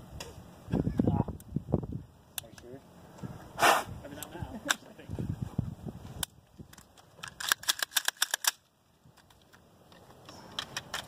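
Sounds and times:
rifle clicks and rattles: 0:06.2 - 0:11.0.

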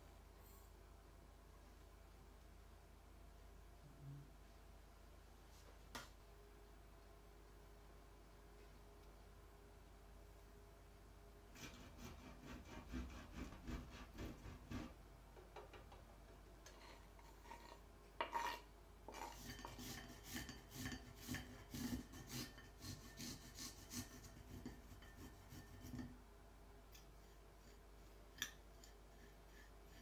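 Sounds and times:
garlic scraping on grater: 0:11.6 - 0:15.0, 0:16.7 - 0:26.1.

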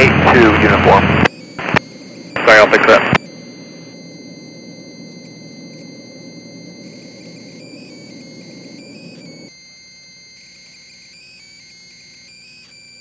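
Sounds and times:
cockpit noise in flight: 0:00.0 - 0:09.5
high electronic whine: 0:00.0 - 0:11.6.

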